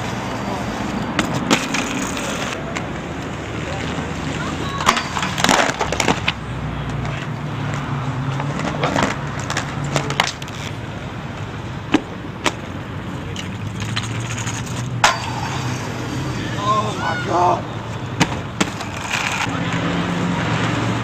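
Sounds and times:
skates grinding metal handrail: 0.0s - 11.0s, 11.9s - 17.5s, 18.2s - 19.9s
skates landing on concrete: 3.7s - 10.6s, 11.9s - 12.7s, 18.2s - 19.6s.

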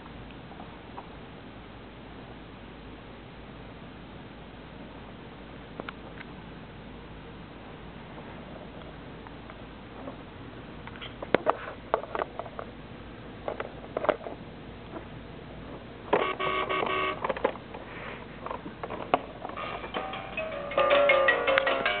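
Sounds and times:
electronic toy beeping tune: 16.2s - 17.2s
electronic toy melody: 16.2s - 17.2s, 19.6s - 22.0s.

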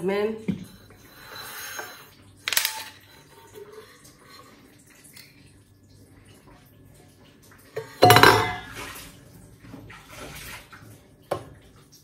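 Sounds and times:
dishware clattering: 7.8s - 8.9s.

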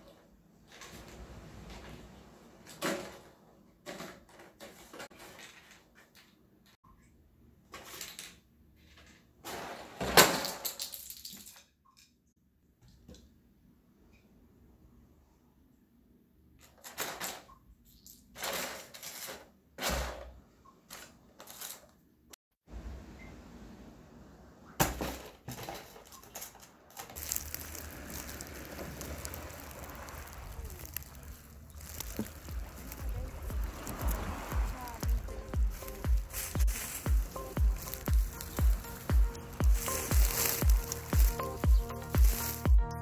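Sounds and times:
pasta rattling inside box: 25.6s - 35.0s
rustling: 25.6s - 43.0s
dry leaves crunching: 27.1s - 43.0s.

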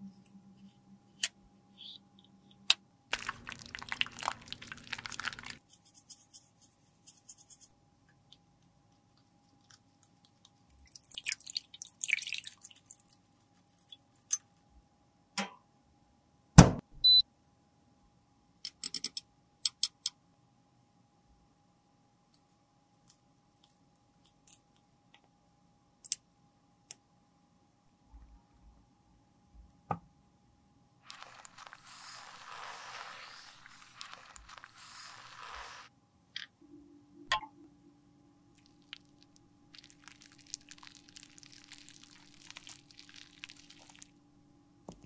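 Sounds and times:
scraping rustle: 31.1s - 35.9s.

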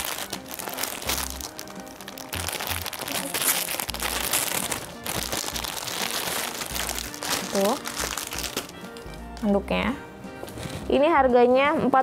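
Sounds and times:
plastic packaging crinkling: 0.0s - 9.5s
background music with bass line: 0.0s - 12.0s.

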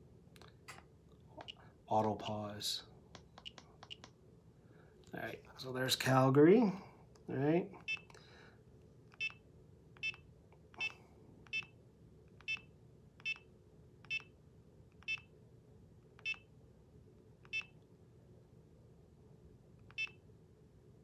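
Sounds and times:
short high key-press beeps: 9.2s - 9.4s, 10.0s - 10.2s, 10.8s - 11.7s, 12.4s - 13.5s, 14.1s - 14.3s, 15.0s - 15.3s, 16.2s - 16.5s, 19.9s - 20.2s.

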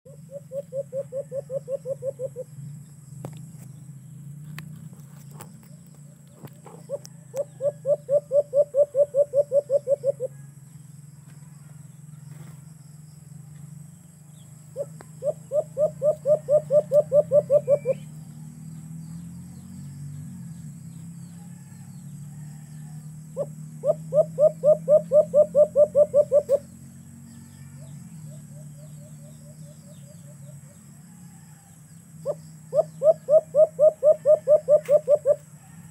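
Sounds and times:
dove cooing: 0.1s - 2.6s, 5.2s - 10.5s, 14.7s - 18.2s, 22.5s - 26.8s, 32.2s - 35.9s
steady low hum: 0.1s - 35.9s.

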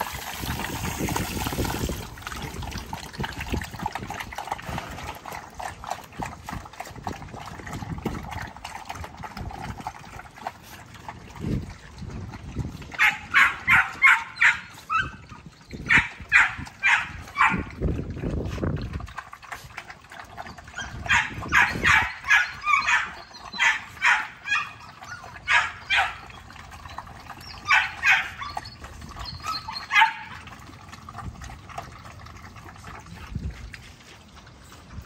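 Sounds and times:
puppies yelping and barking: 12.0s - 18.1s, 19.4s - 32.9s.

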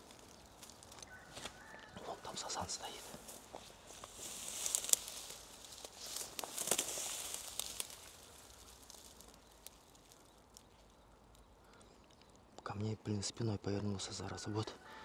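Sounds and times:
rustling through thick weeds: 0.0s - 11.9s.

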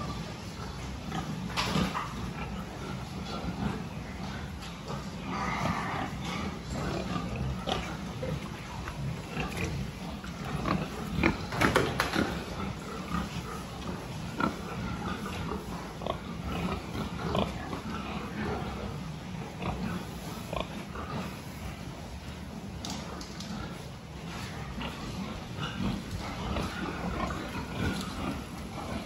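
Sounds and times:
young pigs grunting: 0.0s - 29.0s.

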